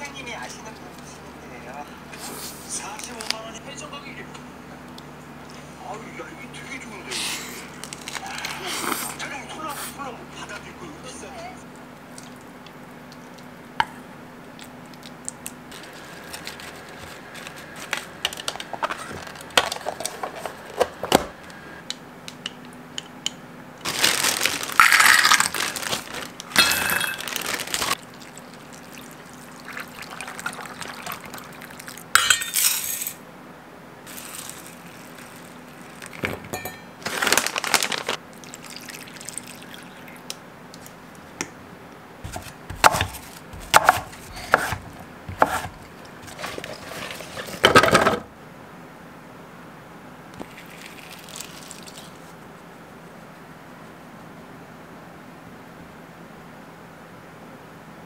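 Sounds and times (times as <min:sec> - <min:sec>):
almonds rattling into metal bowl: 0:23.9 - 0:28.0
bowl and utensil scraping: 0:42.2 - 0:47.7.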